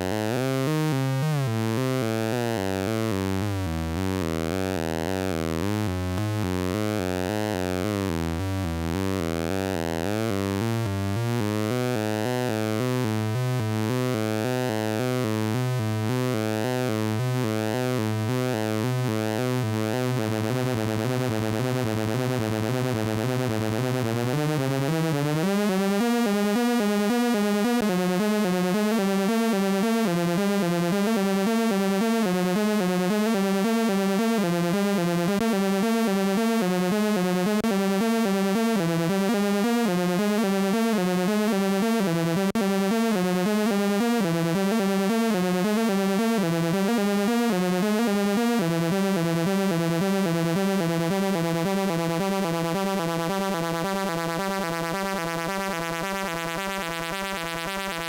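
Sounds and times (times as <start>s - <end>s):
buzzy synth bass drone: 18.2s - 58.0s.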